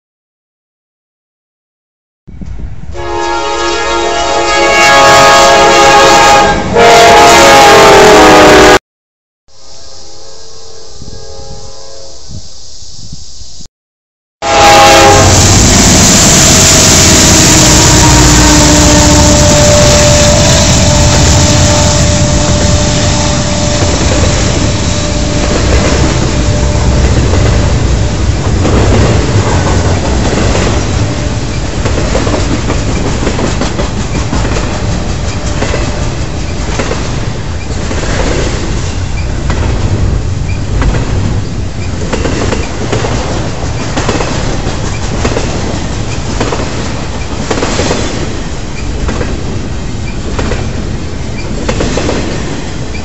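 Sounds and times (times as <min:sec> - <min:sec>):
freight train rumbling past: 0:02.3 - 0:08.8, 0:14.4 - 0:53.0
wheels clacking over rail joints: 0:22.3 - 0:53.0.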